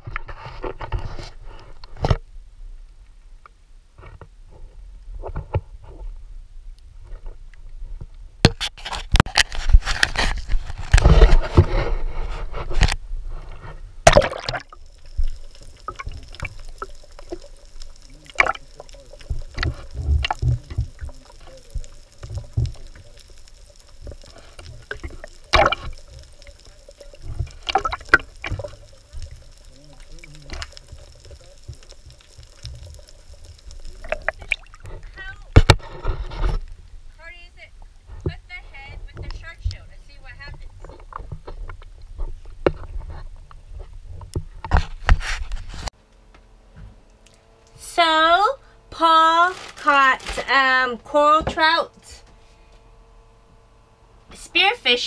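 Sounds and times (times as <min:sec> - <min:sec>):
muffled underwater hum: 0:09.3 - 0:45.9
sea water splashing and churning: 0:14.0 - 0:35.9
underwater clicks and knocks: 0:14.1 - 0:36.8, 0:40.5 - 0:45.6.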